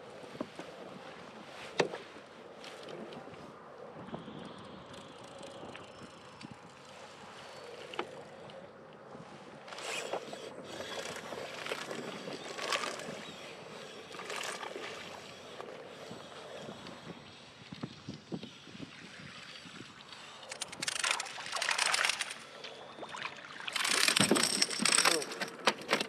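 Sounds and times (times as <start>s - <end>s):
water sloshing around kayak: 9.6s - 17.8s, 19.2s - 24.6s.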